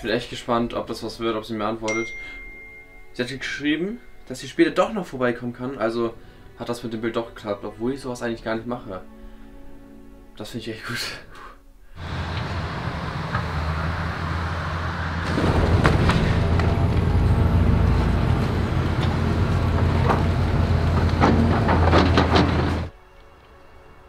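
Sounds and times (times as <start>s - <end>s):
road noise: 12.0s - 22.9s
vehicle engine hum: 12.0s - 22.9s.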